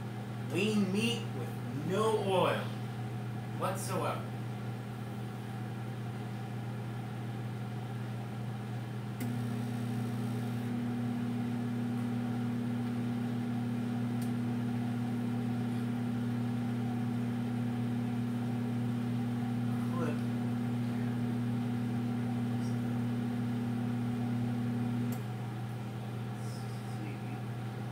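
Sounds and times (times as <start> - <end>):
higher steady hum tone: 0.0 - 27.9
microwave oven humming: 0.0 - 27.9
microwave click: 14.1 - 14.4.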